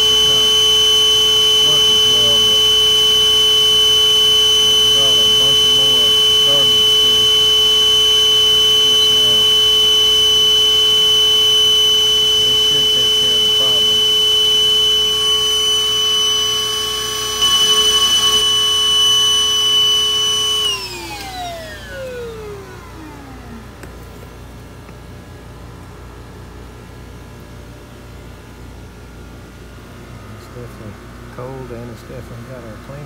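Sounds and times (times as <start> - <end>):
wet vacuum motor whining: 0.0 - 24.4.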